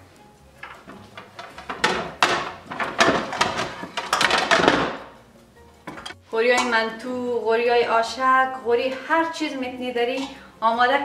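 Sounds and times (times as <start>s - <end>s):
plates knocking and clinking: 0.6s - 5.2s, 5.8s - 6.7s.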